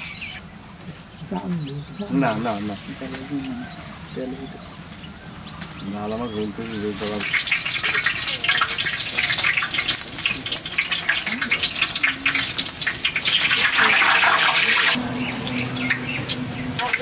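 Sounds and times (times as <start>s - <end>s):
eggplant slices deep-frying in oil: 5.8s - 17.0s.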